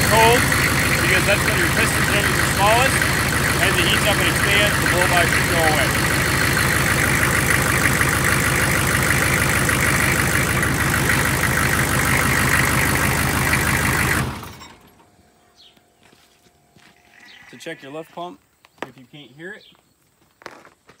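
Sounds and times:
diesel engine idling: 0.0 - 15.7.

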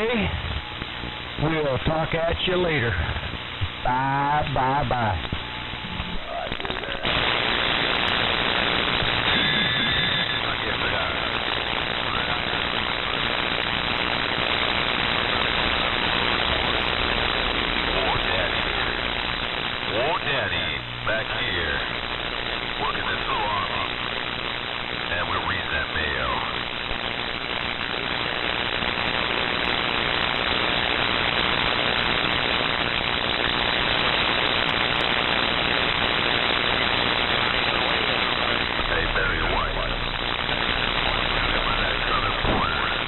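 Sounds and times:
radio static hiss: 0.0 - 43.0
warbling radio whistles: 8.6 - 10.8, 37.4 - 43.0.

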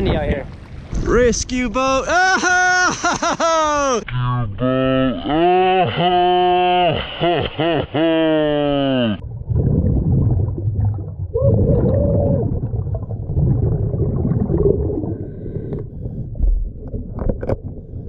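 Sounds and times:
gurgling regulator bubbles: 9.2 - 18.0
muffled underwater rumble: 9.2 - 18.0.

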